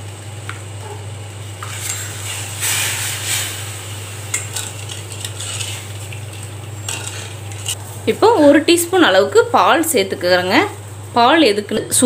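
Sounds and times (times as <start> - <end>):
steady low hum: 0.0 - 12.0
ladle scraping metal pan: 1.6 - 7.8.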